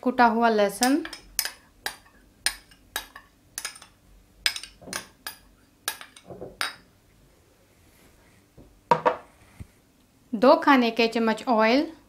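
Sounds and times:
spoon clinking on bowls: 0.8s - 6.8s.

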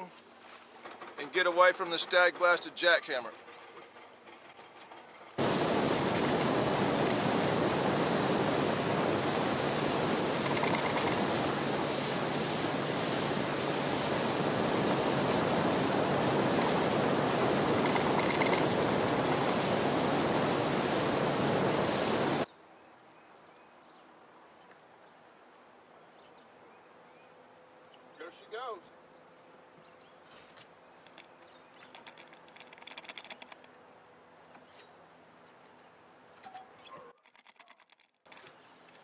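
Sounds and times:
boat wind and water rush: 5.4s - 22.5s.

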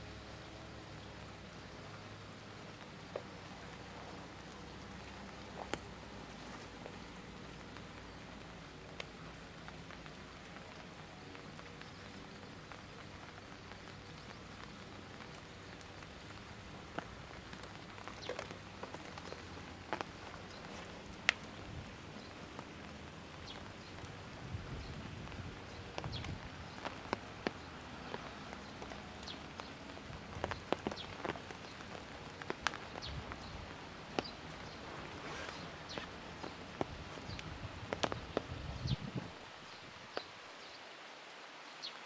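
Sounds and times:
outdoor background hiss: 0.0s - 42.0s
small ticks and taps: 4.5s - 5.9s, 16.9s - 21.5s, 25.9s - 34.8s, 35.9s - 38.6s.

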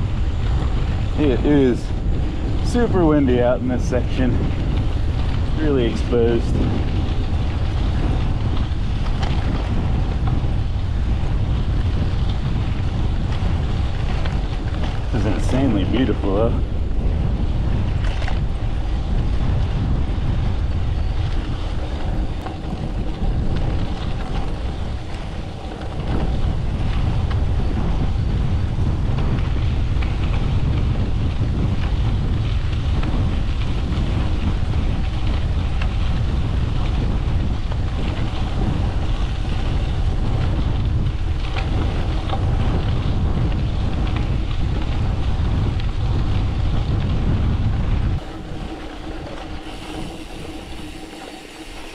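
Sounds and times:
wind buffeting microphone: 0.0s - 51.9s.

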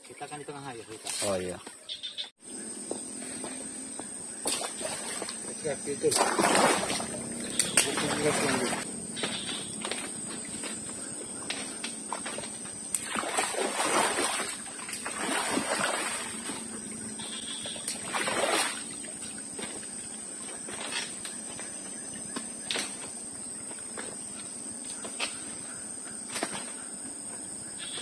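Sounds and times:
footsteps splashing through water: 4.0s - 16.7s, 17.6s - 21.1s.

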